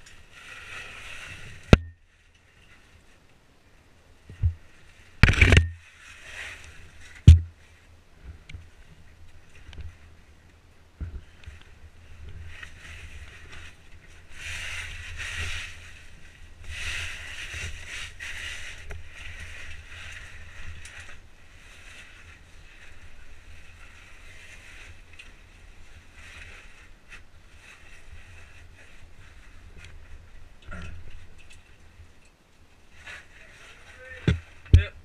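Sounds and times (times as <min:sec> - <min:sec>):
oversuit scraping against rock: 0:05.2 - 0:07.5.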